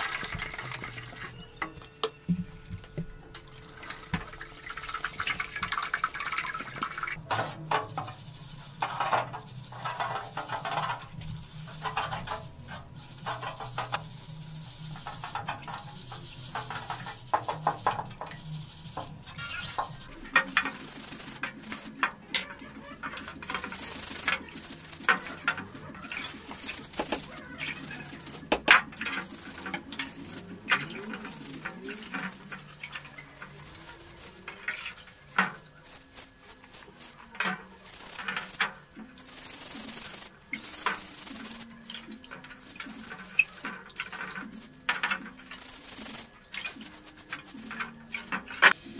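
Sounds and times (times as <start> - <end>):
liquid sloshing and dripping: 3.3 - 7.2
scouring pad scrubbing metal: 3.5 - 48.9.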